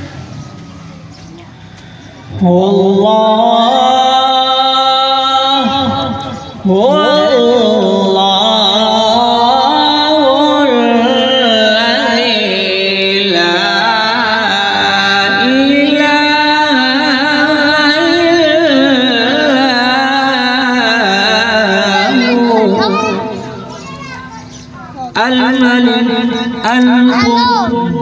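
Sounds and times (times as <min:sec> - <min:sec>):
person singing devotional song: 0:02.3 - 0:23.7.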